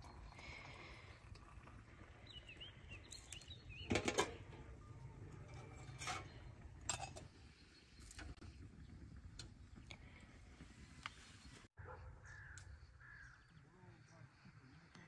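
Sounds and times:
bird chirps: 2.2s - 4.0s
metal and glass clatter: 3.1s - 7.3s
kettle set down on metal grill: 3.8s - 7.3s.

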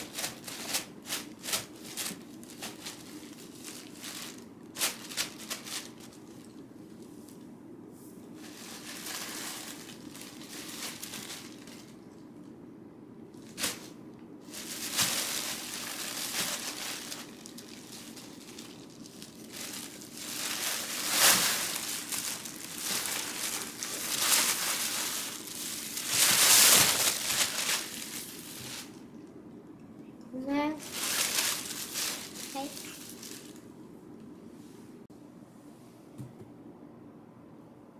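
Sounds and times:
plastic bag crinkling and rustling: 0.0s - 7.1s, 8.4s - 12.6s, 13.4s - 29.3s, 30.7s - 33.7s.

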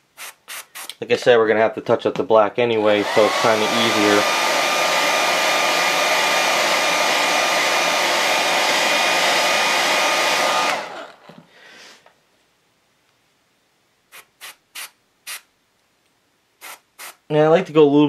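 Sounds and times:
hair dryer blowing: 2.8s - 11.5s.

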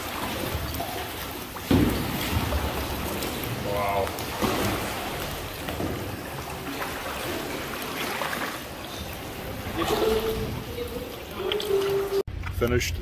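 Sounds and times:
water sloshing and trickling: 0.0s - 12.3s.

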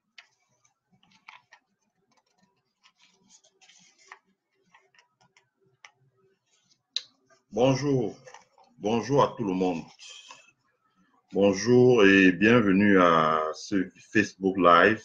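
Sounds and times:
soft rustles: 0.0s - 5.3s.

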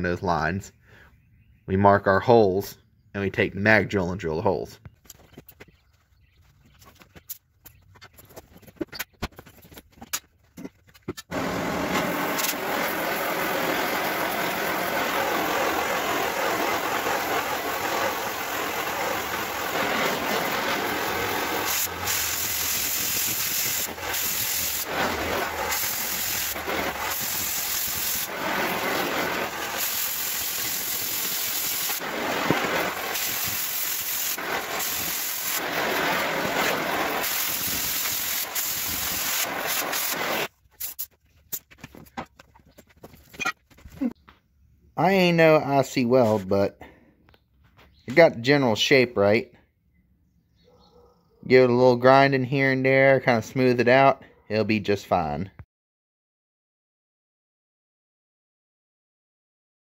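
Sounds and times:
cutting torch hissing: 11.3s - 41.0s.

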